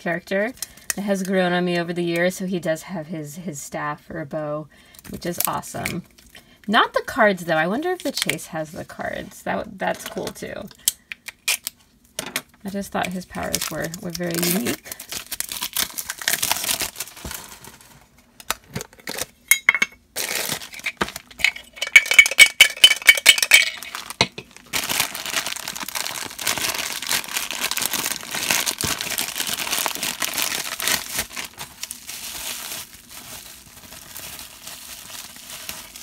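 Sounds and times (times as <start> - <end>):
bubble wrap crinkling: 13.0 - 19.4, 20.1 - 36.0
plastic bag crinkling: 13.0 - 19.4, 20.1 - 36.0
plastic film crinkling: 13.0 - 19.4, 20.2 - 36.0
tin can clinking and ringing: 21.4 - 24.4.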